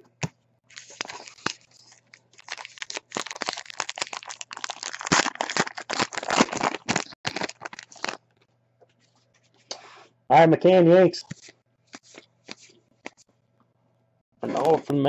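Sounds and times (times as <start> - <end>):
card pack wrapper tearing and crinkling: 0.7 - 8.2, 11.3 - 13.2.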